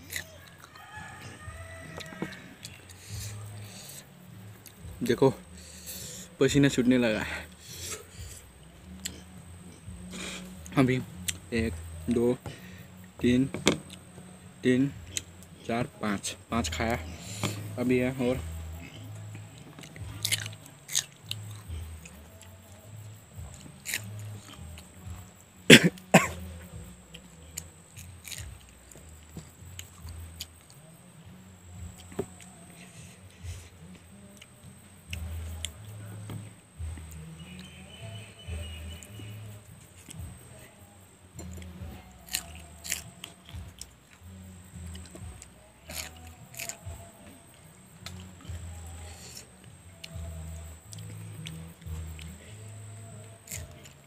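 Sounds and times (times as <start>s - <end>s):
person chewing chillies: 0.0s - 0.6s, 18.4s - 25.2s, 26.0s - 30.8s, 41.4s - 47.3s, 48.0s - 50.2s, 50.9s - 52.6s, 53.2s - 54.0s
mouth sounds: 2.0s - 54.0s.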